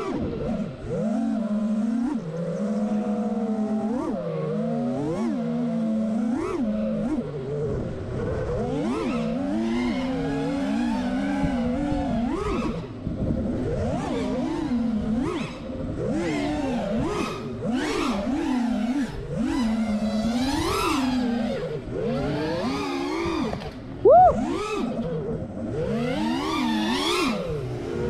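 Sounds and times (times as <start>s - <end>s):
drone motors whining: 0.0s - 28.0s.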